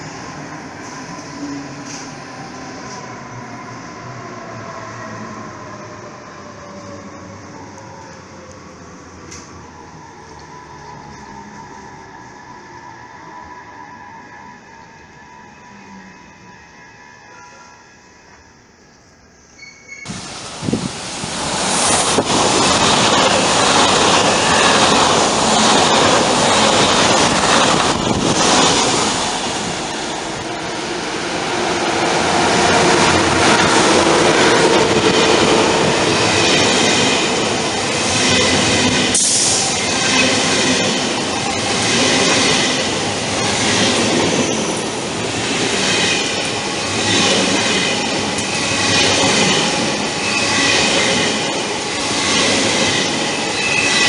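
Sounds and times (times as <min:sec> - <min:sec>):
train wheels rushing on rails: 0:20.0 - 0:54.0.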